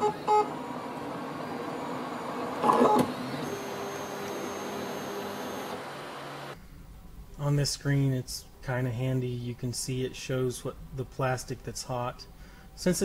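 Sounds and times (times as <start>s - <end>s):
printer motors and fan whirring: 0.0s - 6.6s.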